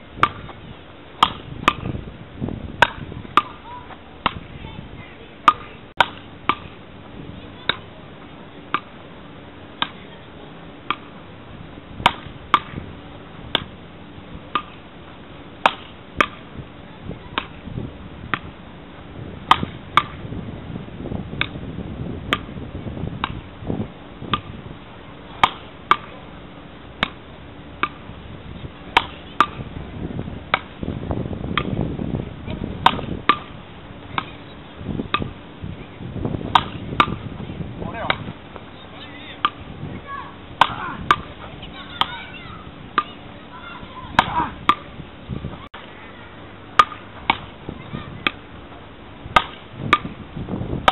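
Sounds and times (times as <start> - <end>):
low background rumble: 0.0 - 50.9
wooden paddles hitting ball: 0.2 - 0.6, 1.2 - 2.0, 2.8 - 4.5, 5.4 - 6.7, 8.7 - 8.9, 9.8 - 10.0, 10.9 - 11.1, 12.0 - 12.8, 13.5 - 13.8, 14.5 - 14.8, 15.6 - 16.4, 19.5 - 20.2, 23.2 - 23.4, 25.4 - 26.2, 27.0 - 27.2, 27.8 - 28.0, 28.9 - 29.6, 30.5 - 30.8, 32.5 - 34.5, 35.1 - 35.3, 36.5 - 37.3, 38.0 - 39.6, 40.6 - 41.3, 44.1 - 44.9, 46.8 - 47.6, 49.3 - 50.1.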